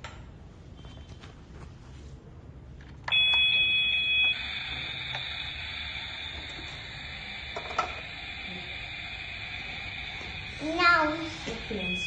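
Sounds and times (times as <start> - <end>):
loud two-tone beep: 3.1 - 5.4, 11.7 - 12.0
steady electronic tone: 3.1 - 12.0.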